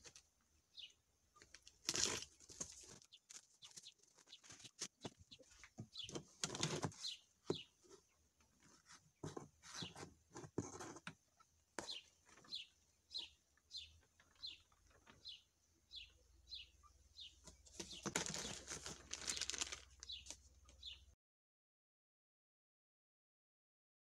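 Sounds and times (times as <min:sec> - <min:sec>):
small bird chirping: 0:00.0 - 0:21.2
plastic bag crinkling: 0:01.6 - 0:05.1, 0:17.8 - 0:20.4.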